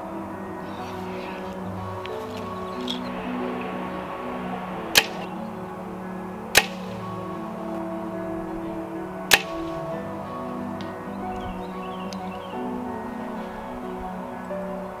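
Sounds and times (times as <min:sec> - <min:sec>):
background music: 0:00.0 - 0:15.0
bow string snapping: 0:06.6 - 0:06.8, 0:09.3 - 0:09.6.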